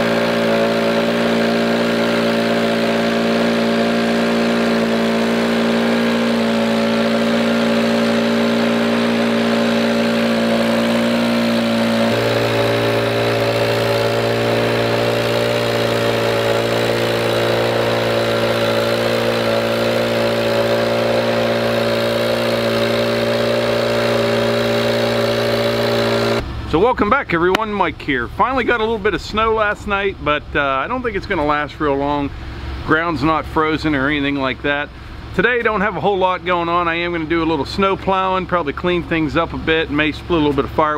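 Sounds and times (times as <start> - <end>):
leaf blower engine drone: 0.0 - 26.8.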